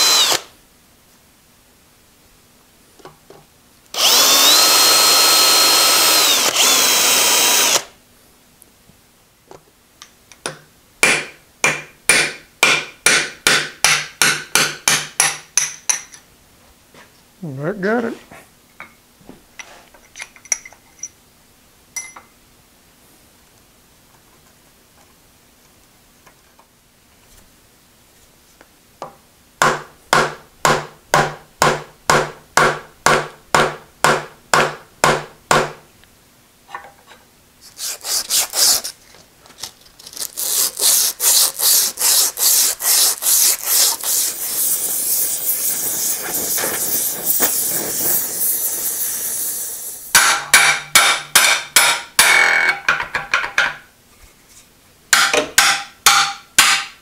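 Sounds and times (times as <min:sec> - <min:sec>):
abrasive cloth rubbing steel shaft: 0:40.3 - 0:50.6.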